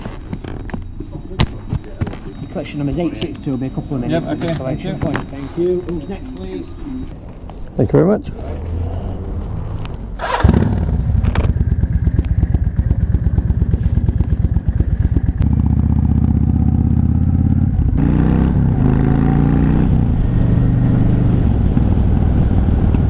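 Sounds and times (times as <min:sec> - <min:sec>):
motorcycle engine starting and revving: 0:08.6 - 0:23.0.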